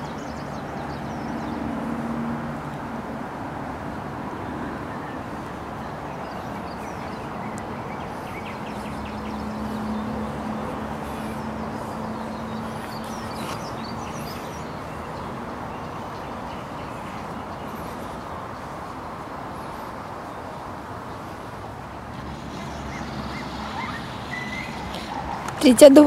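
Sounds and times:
faint bird calls: 4.5s - 25.6s.

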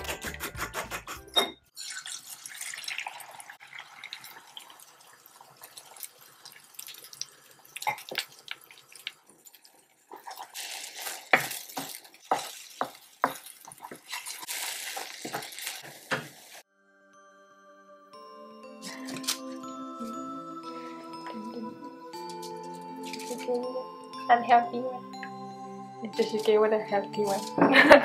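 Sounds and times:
eggs sizzling in a pan: 1.7s - 16.7s.

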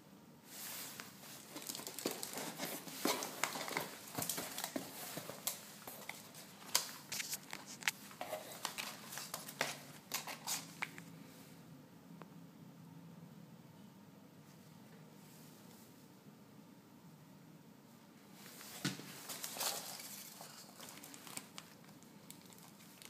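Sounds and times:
foil bag crinkling: 1.2s - 11.0s, 19.2s - 23.0s
packing peanuts rustling and squeaking: 1.3s - 11.0s, 19.2s - 23.0s.

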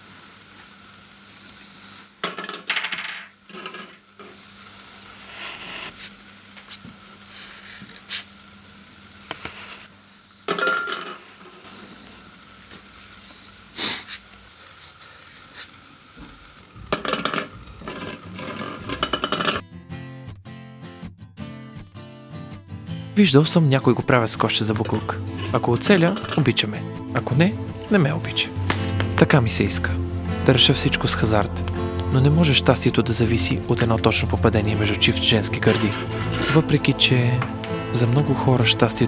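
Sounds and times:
balls clattering in glass bowl: 2.2s - 4.0s, 10.5s - 11.2s, 16.9s - 19.6s.

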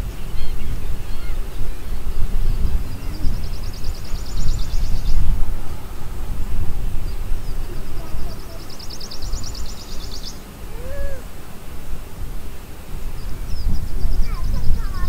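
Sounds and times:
steady low rumble: 0.0s - 9.8s
short arched call: 10.7s - 11.3s.

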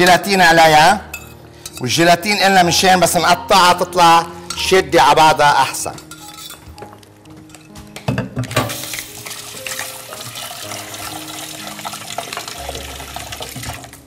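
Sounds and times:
water running from tap: 8.7s - 14.0s.

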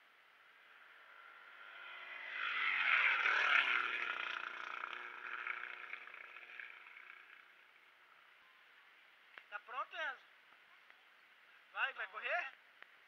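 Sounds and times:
car engine passing at speed: 0.4s - 7.8s.

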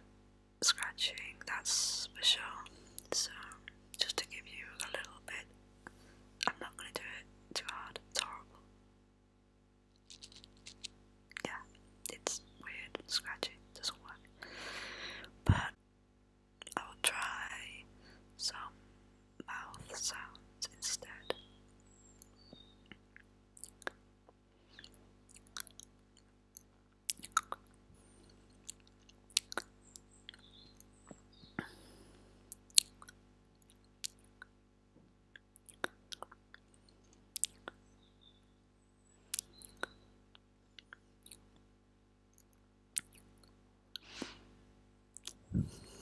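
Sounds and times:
faint electrical hum: 0.0s - 46.0s
mouth clicks and smacks: 10.0s - 14.6s, 22.2s - 24.0s, 24.8s - 31.8s, 32.5s - 34.6s, 35.3s - 37.8s, 39.3s - 40.0s, 40.8s - 41.4s, 42.3s - 44.4s, 45.1s - 46.0s.

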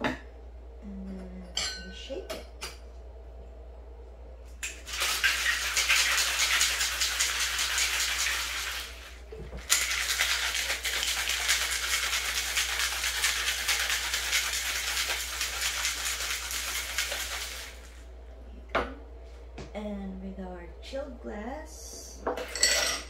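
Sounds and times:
ice rattling in cocktail shaker: 4.8s - 9.0s, 9.7s - 17.9s.

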